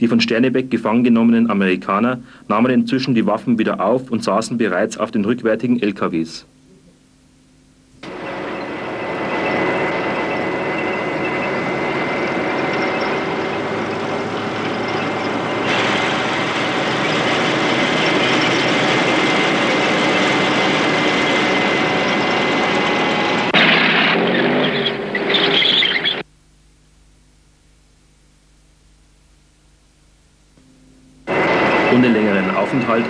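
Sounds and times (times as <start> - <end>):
vehicle engines rumbling: 8.0 - 26.2, 31.2 - 33.0.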